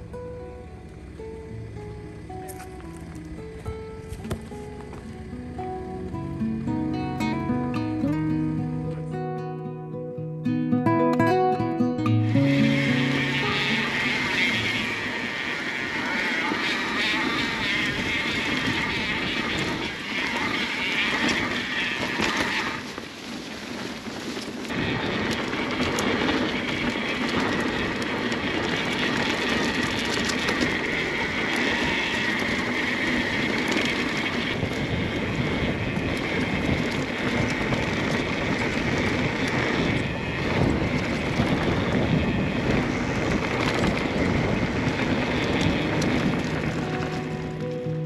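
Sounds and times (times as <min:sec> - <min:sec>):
tyres on dirt: 0:01.9 - 0:06.3, 0:12.2 - 0:48.0
bike rattling clicks: 0:02.4 - 0:05.1, 0:23.3 - 0:35.4, 0:43.0 - 0:47.8
wind on microphone: 0:12.2 - 0:48.0.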